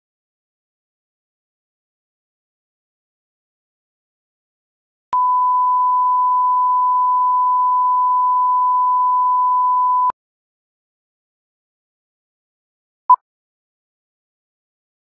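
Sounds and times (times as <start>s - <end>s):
steady test tone beep: 5.2s - 10.1s.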